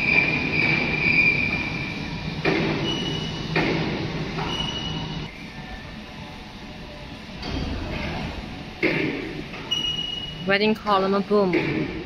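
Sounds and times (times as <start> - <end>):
machinery humming and whining: 0.0 - 12.0.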